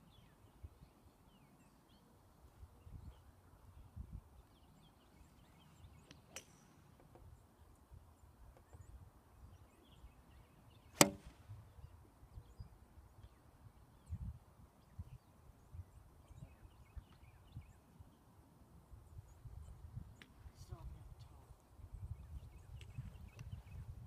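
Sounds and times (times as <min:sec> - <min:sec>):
golf club striking ball: 0:06.2 - 0:07.1, 0:11.0 - 0:11.4.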